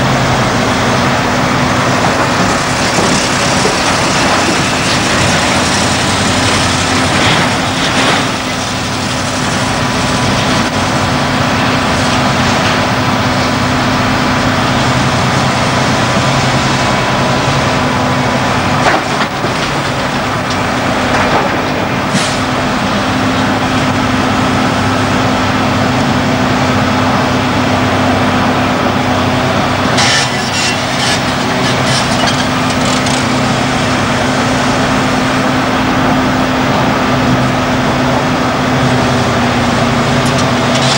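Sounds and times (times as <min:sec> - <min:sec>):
excavator diesel engine running: 0:00.0 - 0:40.9
rocks crashing and clattering: 0:02.0 - 0:08.9.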